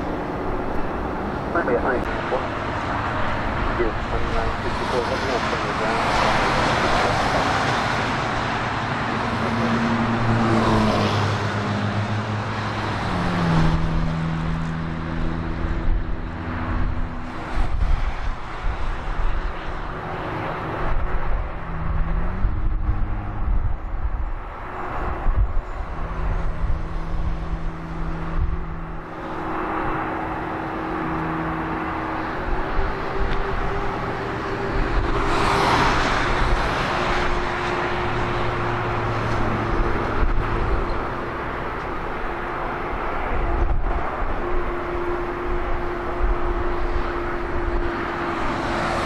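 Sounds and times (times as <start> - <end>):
engines humming: 0.0 - 49.0
traffic rush: 0.0 - 49.0.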